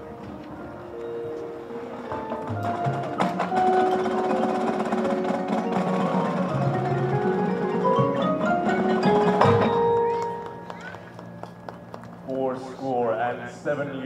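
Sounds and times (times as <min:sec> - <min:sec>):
marching band playing: 0:00.0 - 0:12.3
mallet percussion: 0:01.0 - 0:11.8.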